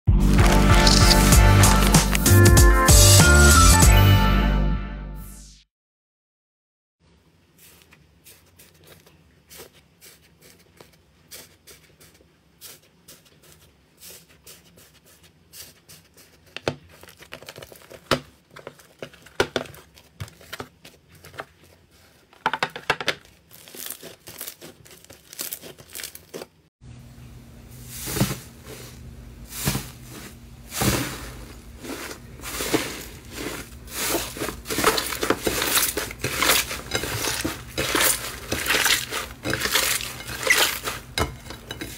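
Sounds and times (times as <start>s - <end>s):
slime crust crackling: 0.3s - 2.4s, 23.2s - 26.7s, 31.6s - 41.9s
slime squishing while kneaded: 7.6s - 22.4s, 23.2s - 26.7s, 30.8s - 41.9s.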